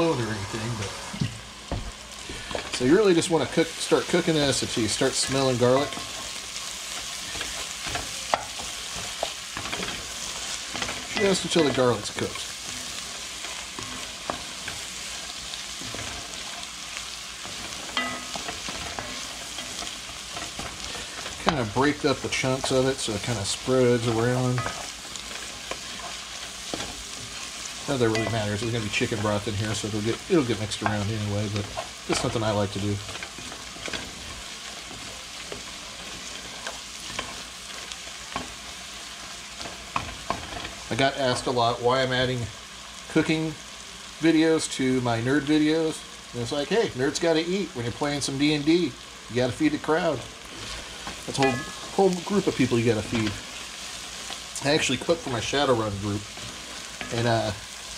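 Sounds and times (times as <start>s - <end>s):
vegetables sizzling in a pot: 0.0s - 57.9s
wooden spoon scraping a pot: 4.0s - 40.9s.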